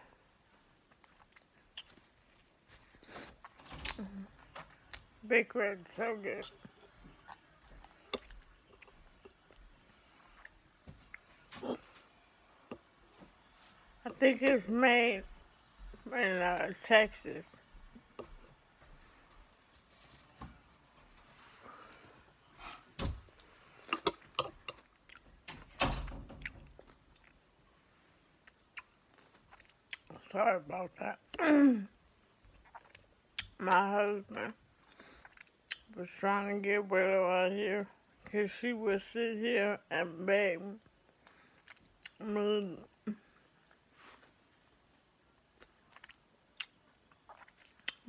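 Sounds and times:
person chewing and swallowing: 0:00.6 - 0:02.5, 0:06.4 - 0:12.1, 0:23.3 - 0:25.4, 0:28.4 - 0:30.2, 0:32.4 - 0:33.6, 0:34.7 - 0:35.9, 0:45.5 - 0:48.0
crunchy chewing: 0:28.4 - 0:30.2, 0:45.6 - 0:48.0.

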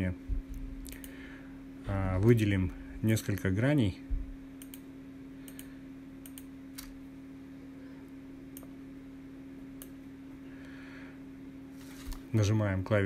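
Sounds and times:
low electrical hum: 0:00.0 - 0:13.0
computer mouse clicks: 0:04.6 - 0:04.8, 0:05.4 - 0:07.0.

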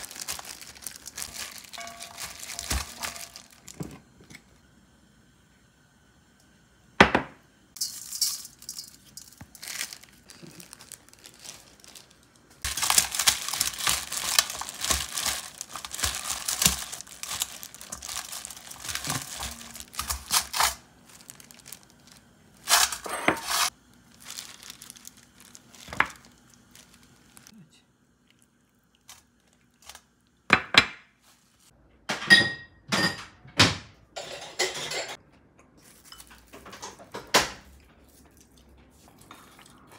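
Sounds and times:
packaging crinkling and tearing: 0:00.0 - 0:03.9, 0:09.0 - 0:27.5, 0:29.0 - 0:30.1.

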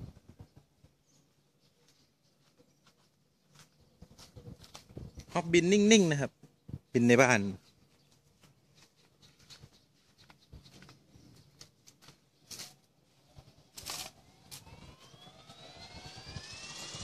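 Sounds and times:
rc helicopter spooling up whine: 0:12.7 - 0:17.0.

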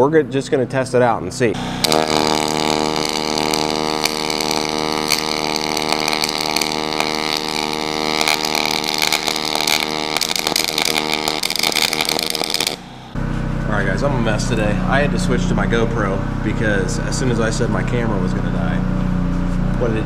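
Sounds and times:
welding arc buzzing: 0:01.6 - 0:13.2
welding crackle and spatter: 0:01.6 - 0:13.2.

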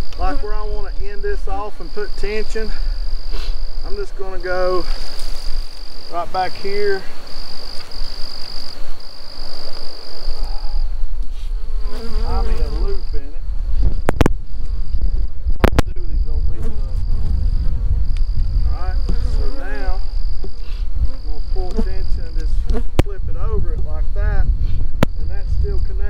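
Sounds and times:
honeybees buzzing: 0:00.0 - 0:23.2
high insect trill: 0:00.0 - 0:26.0
low rumble: 0:13.3 - 0:21.2.

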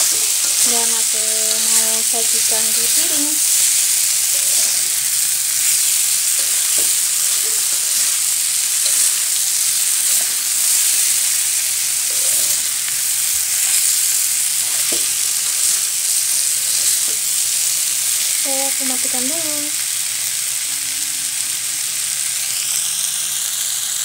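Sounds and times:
spatula scraping pan: 0:00.0 - 0:14.0
food sizzling in metal pan: 0:00.0 - 0:24.0.

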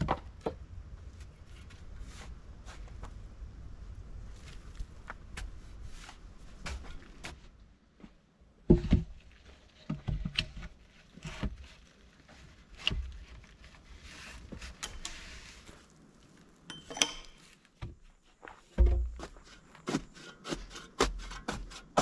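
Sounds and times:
rustling and scraping: 0:01.0 - 0:03.3, 0:04.2 - 0:22.0
knocks and thumps: 0:08.7 - 0:09.2, 0:18.7 - 0:20.1.

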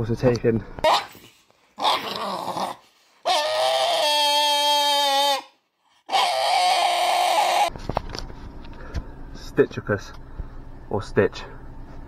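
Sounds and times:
dog whining howls: 0:01.8 - 0:07.7.

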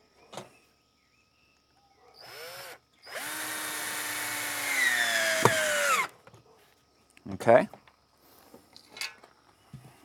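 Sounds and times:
drill driving screw into wood: 0:02.2 - 0:06.1.

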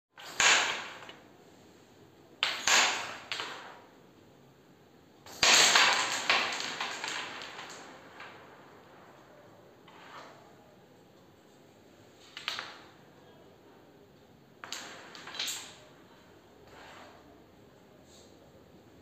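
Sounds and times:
carrom coins scattering: 0:00.2 - 0:01.2, 0:02.4 - 0:03.9, 0:05.3 - 0:08.9, 0:12.2 - 0:13.0, 0:14.6 - 0:16.0.

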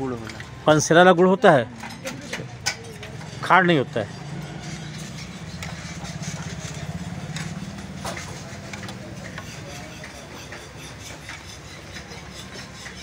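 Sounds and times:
small engine idling: 0:04.1 - 0:12.4.

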